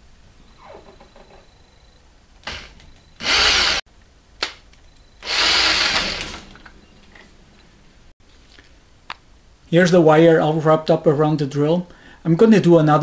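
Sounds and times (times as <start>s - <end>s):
drill click: 2.4s - 3.8s, 5.2s - 6.6s
power drill bursts: 2.4s - 3.8s, 5.2s - 6.6s.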